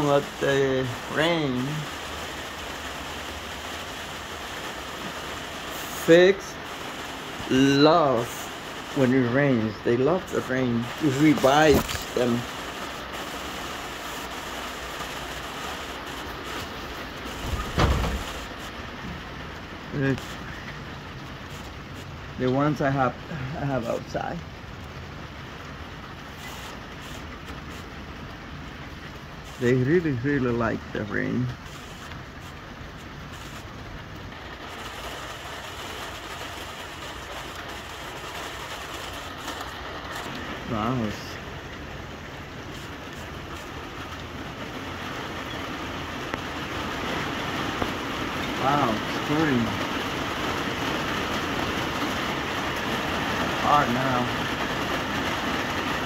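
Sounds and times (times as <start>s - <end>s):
rain on greenhouse: 0.0s - 56.0s
low thump: 17.4s - 18.4s.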